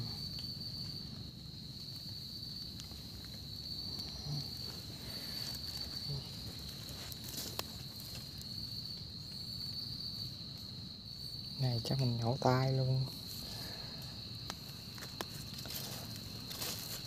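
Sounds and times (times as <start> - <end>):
crickets trilling: 0.0 - 17.0
rustling handling noise: 14.9 - 17.0.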